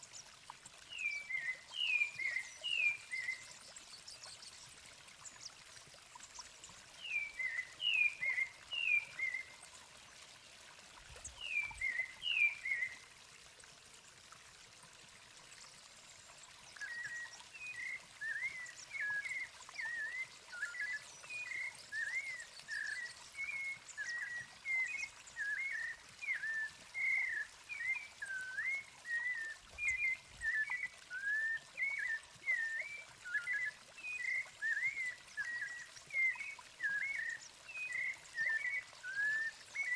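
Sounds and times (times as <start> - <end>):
thrush whistled song: 0.9 - 4.6, 7.0 - 9.6, 11.3 - 13.0, 16.7 - 39.9.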